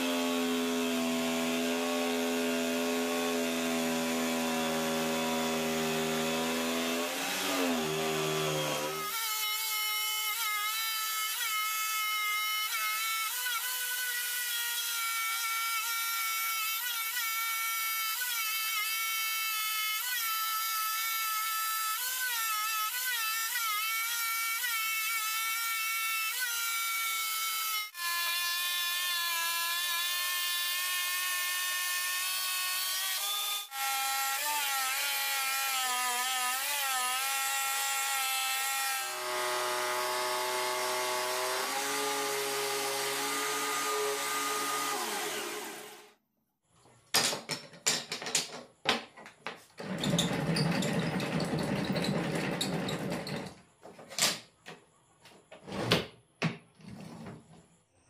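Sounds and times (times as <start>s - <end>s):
scroll saw cutting plywood: 0.0s - 19.0s, 26.3s - 46.2s, 49.8s - 53.6s.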